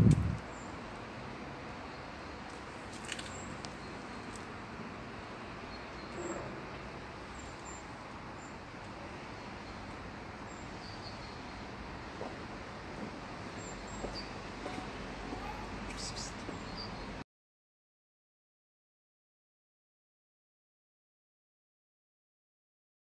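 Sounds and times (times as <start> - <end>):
distant traffic hum: 0.0 - 17.2
bird chirps: 5.7 - 6.5, 10.5 - 11.6, 13.5 - 17.2.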